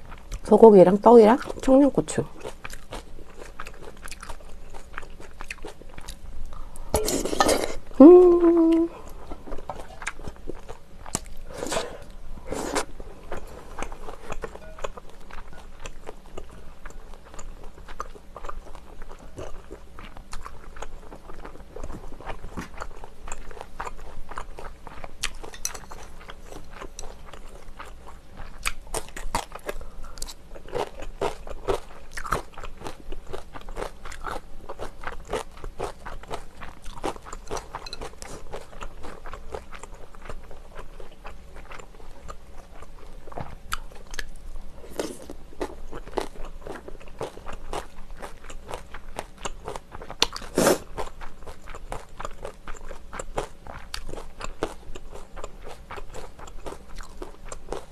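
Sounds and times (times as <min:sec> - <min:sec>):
wet chewing: 0:02.4 - 0:57.9
person humming: 0:07.0 - 0:09.1
slurping: 0:11.5 - 0:12.9.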